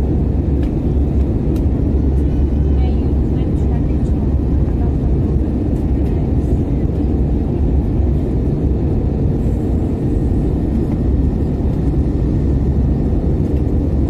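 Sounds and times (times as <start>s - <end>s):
airliner cabin engine rumble: 0.0s - 14.0s.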